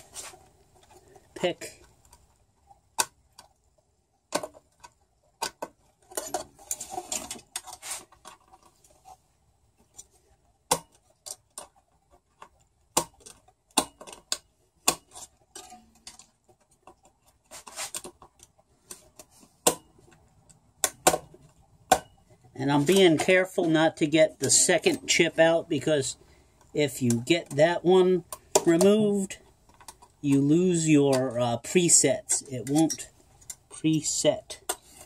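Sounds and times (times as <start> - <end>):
metal pick clicking and scraping: 9.8 - 23.2, 26.2 - 31.5, 32.2 - 35.0.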